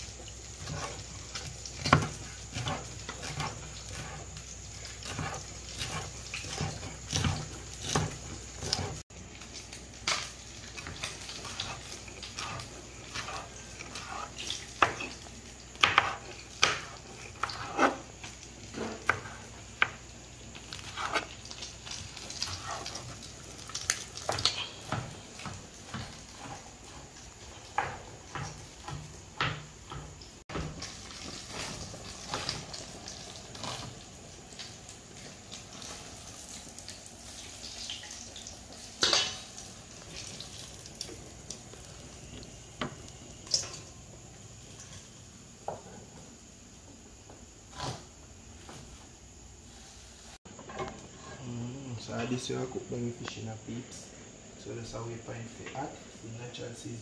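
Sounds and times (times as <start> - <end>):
knife chopping on cutting board: 5.0 - 9.0, 15.8 - 18.0.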